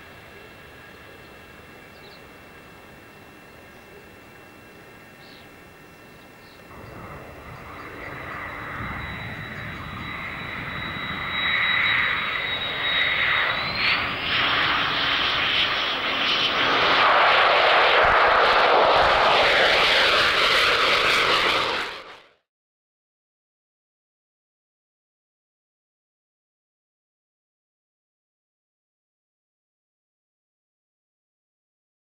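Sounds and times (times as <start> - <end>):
jet engines roaring: 0.0 - 22.4.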